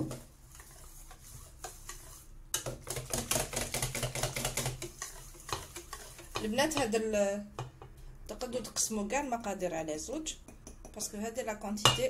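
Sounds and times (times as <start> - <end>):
whisk tapping metal bowl: 0.0 - 7.9, 11.8 - 12.0.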